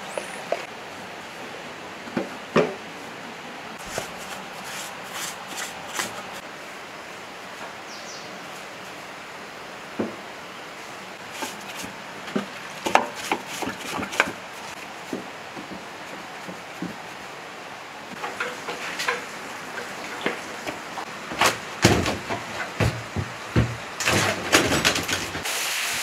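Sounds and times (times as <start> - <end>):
engine parts clinking and knocking: 18.2 - 25.4
heavy engine block knocks: 21.4 - 25.0.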